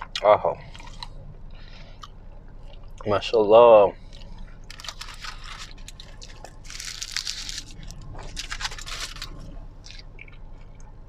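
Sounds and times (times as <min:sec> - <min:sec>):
aluminium foil crinkling: 0:04.6 - 0:10.1.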